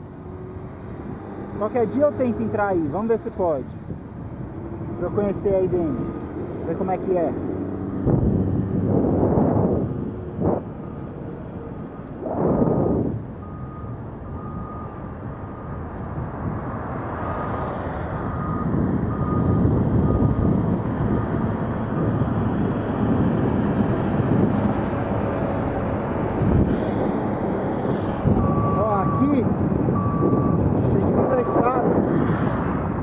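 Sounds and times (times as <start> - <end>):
passing road traffic: 0.0 - 33.0
wind on microphone: 0.1 - 33.0
reversing alarm beeps: 13.4 - 15.0, 18.3 - 20.4, 28.4 - 29.4, 30.0 - 30.6, 31.2 - 31.8.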